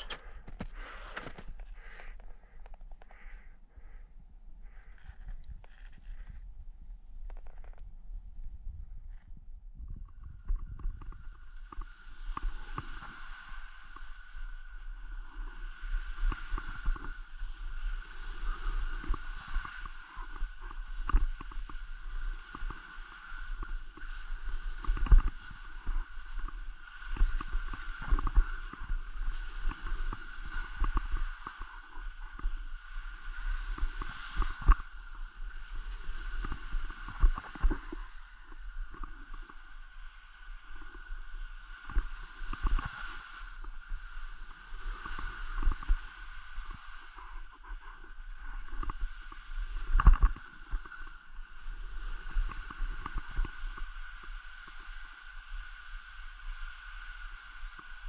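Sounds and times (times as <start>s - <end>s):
skis swishing on snow: 0.0s - 1.6s, 11.8s - 58.0s
wind buffeting microphone: 7.8s - 14.0s.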